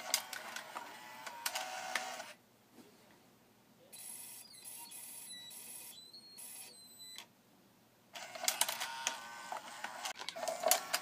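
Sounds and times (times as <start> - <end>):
faint motor whir: 0.0 - 2.4, 8.2 - 11.0.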